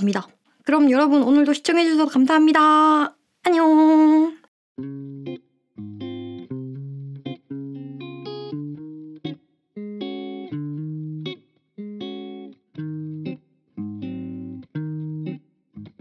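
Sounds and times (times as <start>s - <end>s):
plucked guitar notes and chords: 4.8s - 16.0s.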